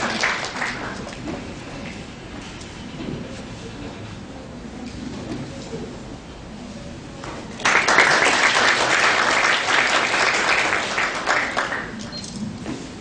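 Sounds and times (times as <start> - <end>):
audience applauding: 0.0 - 1.0, 7.6 - 12.0.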